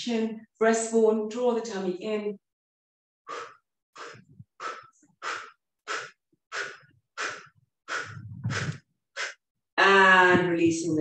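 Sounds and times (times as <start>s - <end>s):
woman exhaling forcefully: 3.3s - 9.4s.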